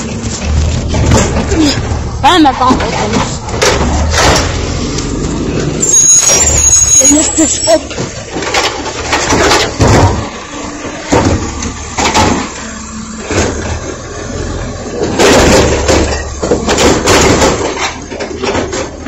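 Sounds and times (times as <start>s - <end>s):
garbage truck engine running: 0.0s - 19.0s
hydraulic arm clanking: 0.0s - 19.0s
contents crashing into hopper: 5.8s - 13.9s, 15.0s - 19.0s.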